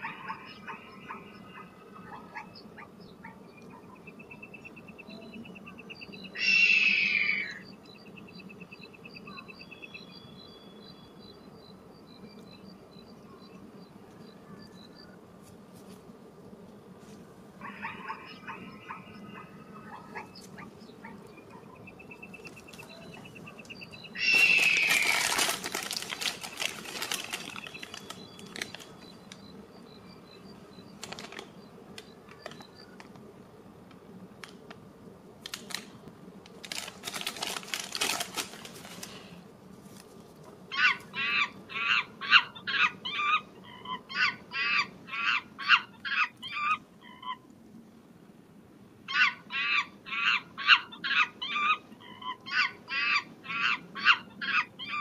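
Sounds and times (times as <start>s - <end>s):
short repeated animal calls: 0.0s - 4.0s, 6.3s - 7.7s, 17.6s - 22.0s, 22.6s - 28.9s, 40.7s - 47.4s
plastic wrapper crinkling: 24.2s - 29.4s, 31.0s - 33.1s, 35.4s - 39.3s.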